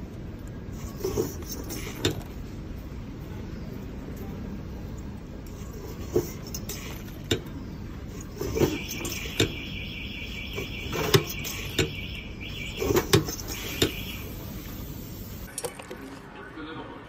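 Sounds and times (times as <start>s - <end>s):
rollers rattling: 8.1s - 9.7s.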